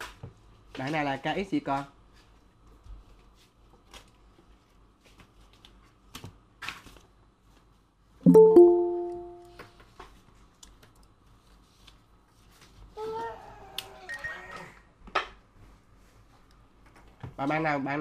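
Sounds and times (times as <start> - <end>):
bell-like notification chime: 8.3 - 9.5.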